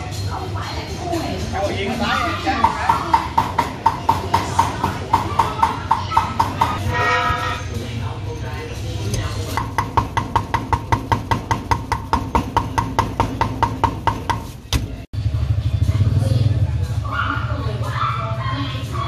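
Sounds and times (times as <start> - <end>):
cleaver chopping meat on wood: 9.5 - 14.9.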